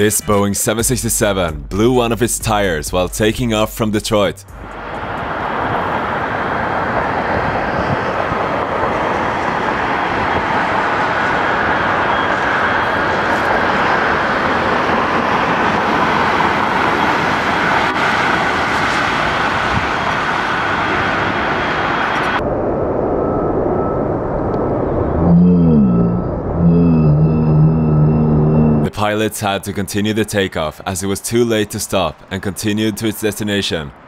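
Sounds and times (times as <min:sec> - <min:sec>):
jet engines roaring: 0:04.4 - 0:29.4.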